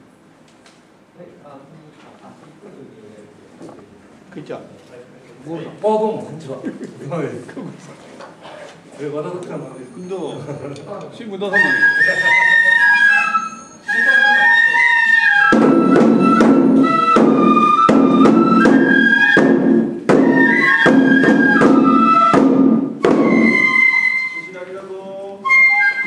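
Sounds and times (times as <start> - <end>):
bamboo flute melody: 11.4 - 26.0
loud drum strokes: 15.4 - 24.2.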